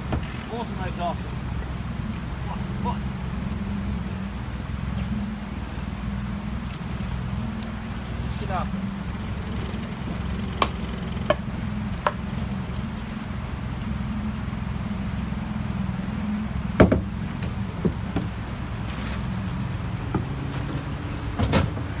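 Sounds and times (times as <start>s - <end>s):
outboard motor running: 0.0s - 22.0s
sharp knocks: 10.1s - 12.3s, 16.8s - 17.1s.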